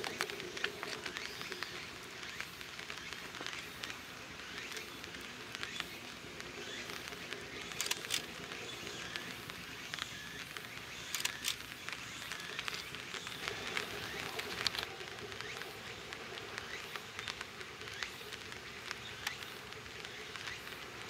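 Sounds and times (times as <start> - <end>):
sharp clicks: 6.6 - 9.3, 9.9 - 15.6.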